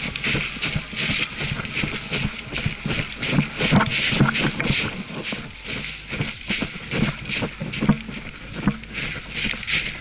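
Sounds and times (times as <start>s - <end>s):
clothing and gear rustling: 0.0s - 10.0s
footsteps at a brisk walk: 0.0s - 10.0s.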